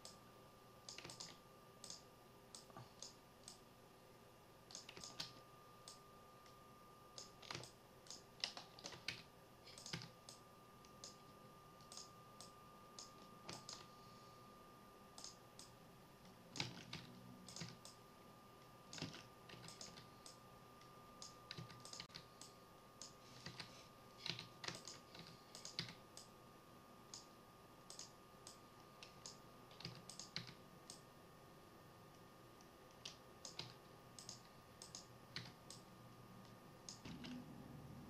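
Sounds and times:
faint high-pitched hum: 0.0s - 38.0s
keyboard and mouse clicking: 0.9s - 3.6s, 4.7s - 6.0s, 7.2s - 11.2s, 11.8s - 13.9s, 15.2s - 18.0s, 18.9s - 20.4s, 21.2s - 26.3s, 27.9s - 31.0s, 32.6s - 37.4s.

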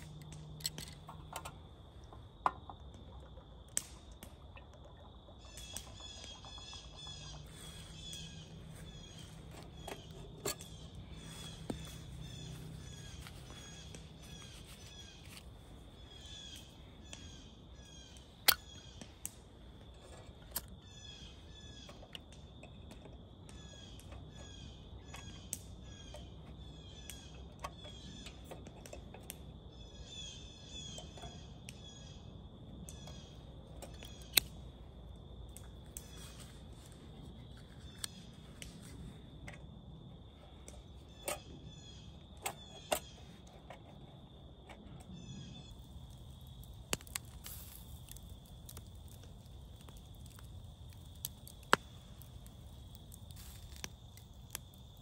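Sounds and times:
birds chirping: 5.1s - 22.5s.

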